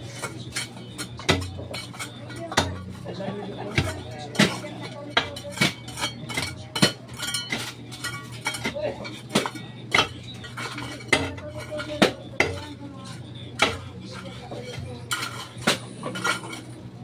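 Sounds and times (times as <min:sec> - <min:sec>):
shovel scraping gravel and rubble: 0:05.4 - 0:12.7, 0:13.6 - 0:16.8.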